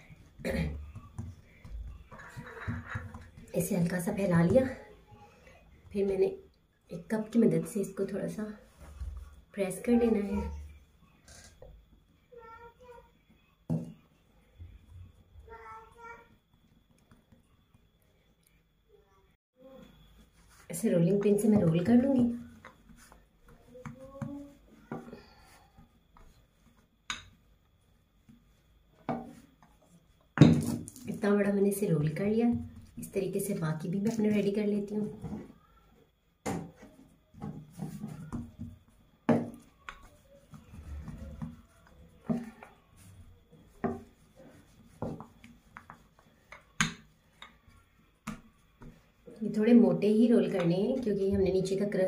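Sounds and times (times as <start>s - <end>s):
rolling pin rubbing on dough: 20.0s - 26.9s, 39.5s - 49.3s.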